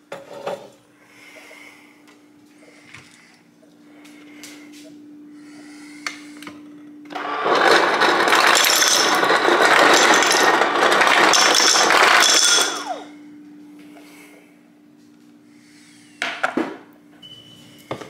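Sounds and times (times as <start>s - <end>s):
ice cubes clattering into glass: 7.4s - 13.0s.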